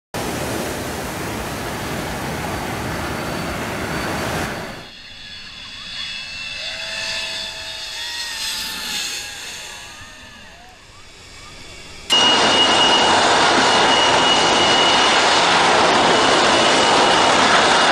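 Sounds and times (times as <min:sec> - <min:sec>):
loud steady rushing noise: 0:00.2 - 0:05.5, 0:06.2 - 0:17.9
jet airliner passing overhead: 0:00.2 - 0:17.9.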